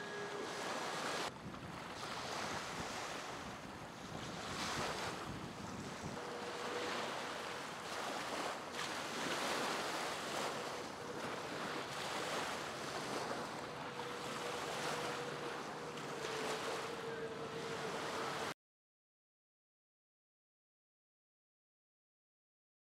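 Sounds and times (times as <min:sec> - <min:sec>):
faint thin whine: 0:00.0 - 0:01.3, 0:04.2 - 0:18.5
choppy water: 0:00.0 - 0:18.5
wind on microphone: 0:00.0 - 0:18.5.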